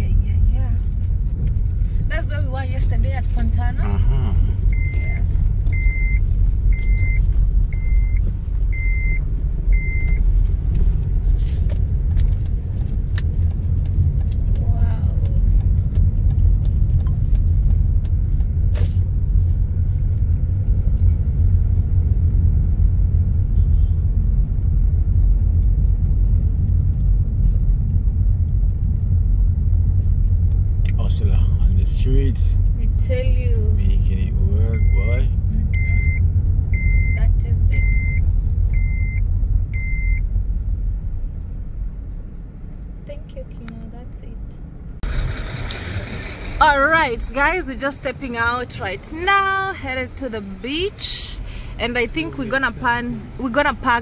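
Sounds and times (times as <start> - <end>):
road and engine rumble: 0.0 - 54.0.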